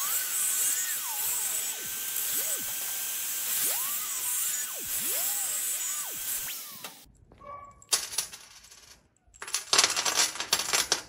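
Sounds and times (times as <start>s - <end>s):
angle grinder cutting steel: 0.0s - 7.1s
bolts and nuts clattering: 6.8s - 11.0s.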